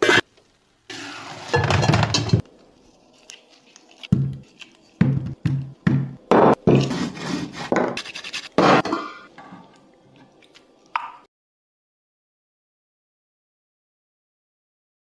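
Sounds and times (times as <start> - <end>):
dishes and cutlery clattering: 1.4 - 2.4, 8.6 - 9.7.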